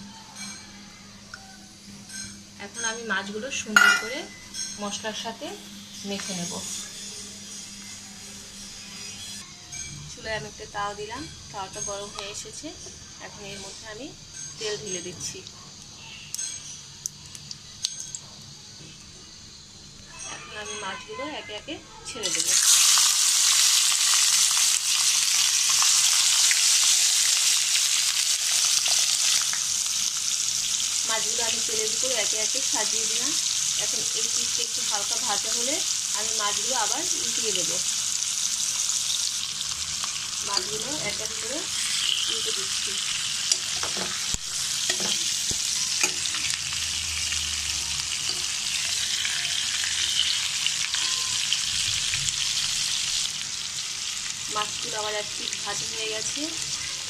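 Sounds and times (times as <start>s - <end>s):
fish sizzling in hot oil: 22.2s - 57.0s.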